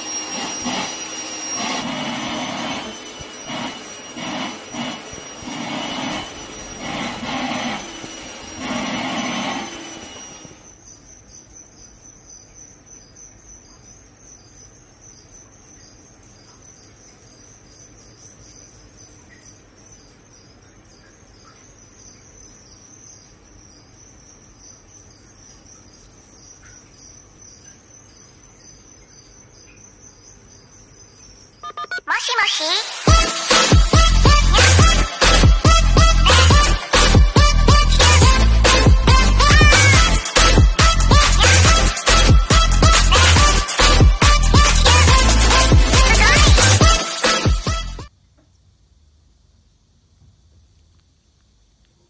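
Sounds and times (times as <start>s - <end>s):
vacuum cleaner running: 0.0s - 10.8s, 32.2s - 48.1s
insects chirping: 0.0s - 52.0s.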